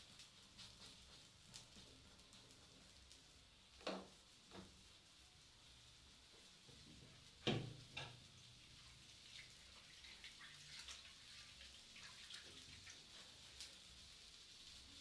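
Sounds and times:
batter frying in a pan: 0:00.0 - 0:15.0.

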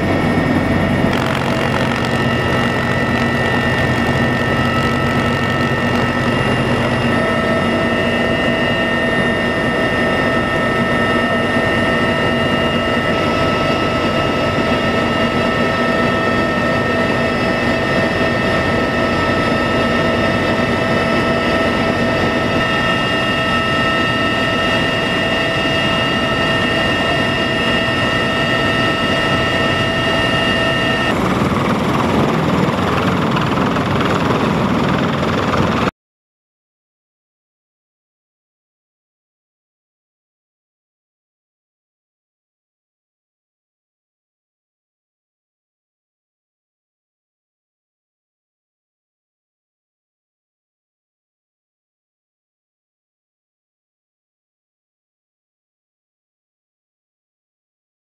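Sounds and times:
helicopter engine and rotor roar: 0:00.0 - 0:35.9
turbine whining tones: 0:00.0 - 0:35.9.

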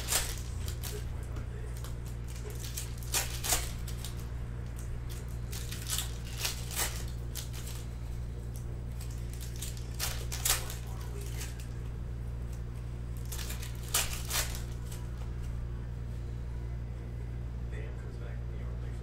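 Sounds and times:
cards flipped by hand: 0:00.0 - 0:07.9, 0:08.5 - 0:11.8, 0:13.2 - 0:15.5
low hum: 0:00.0 - 0:19.0.

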